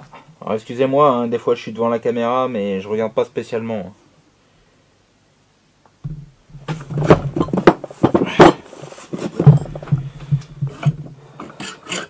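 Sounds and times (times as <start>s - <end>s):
metal clunks and knocks: 6.0s - 8.6s, 9.2s - 12.0s.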